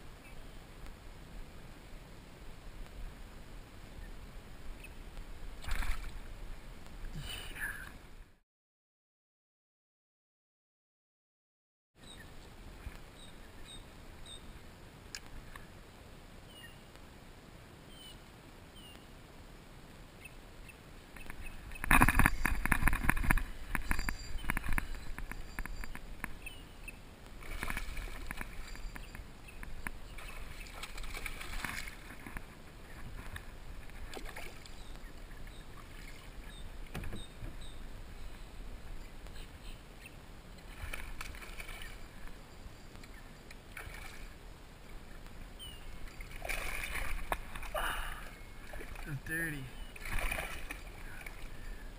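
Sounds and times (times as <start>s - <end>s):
low water noise: 0.0s - 8.4s, 12.0s - 51.9s
faint bird chirps: 23.8s - 27.0s, 49.3s - 51.9s
clattering knocks and splashes: 30.2s - 34.7s, 46.1s - 47.8s, 50.0s - 51.4s.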